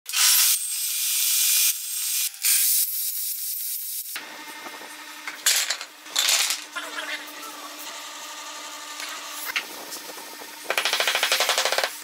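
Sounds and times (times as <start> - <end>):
table saw cutting wood: 6.0 - 12.0.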